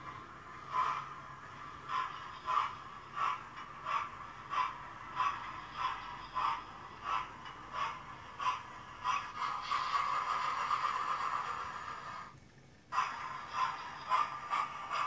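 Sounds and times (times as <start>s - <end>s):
steady steam hiss: 0.0s - 15.0s
synthesised steam locomotive chuffs: 0.0s - 15.0s.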